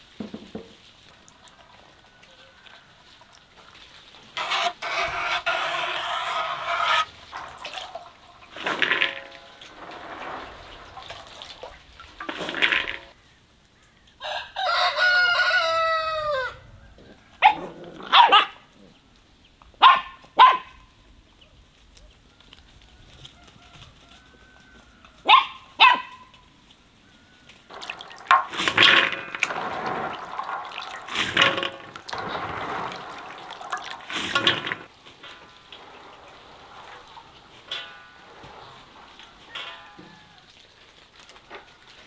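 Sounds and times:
rooster crowing: 2.0s - 3.2s, 14.2s - 17.5s, 23.0s - 25.3s, 39.1s - 40.7s
dog barking: 17.4s - 18.6s, 19.8s - 20.8s, 25.2s - 26.3s.

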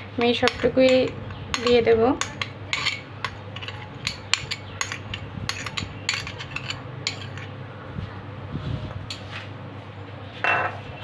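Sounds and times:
metal spoon clinking on bowl: 0.2s - 7.5s.

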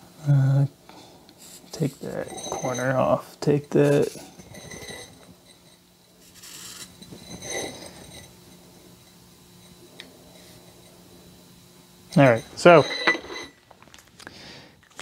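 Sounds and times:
steady low hum: 0.0s - 15.0s
marker scratching on steel: 3.8s - 7.8s.

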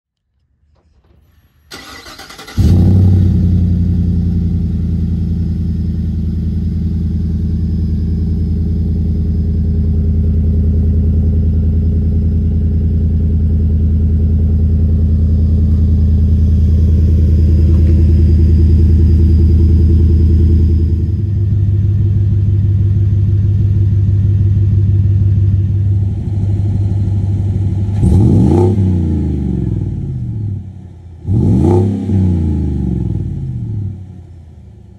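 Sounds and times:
truck engine cranking and starting: 0.7s - 4.2s, 13.9s - 21.5s
truck engine idling: 0.7s - 28.3s.

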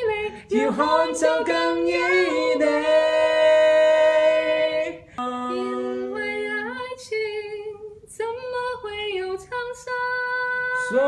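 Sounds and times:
man and woman singing in harmony: 0.0s - 8.1s, 10.6s - 11.0s.

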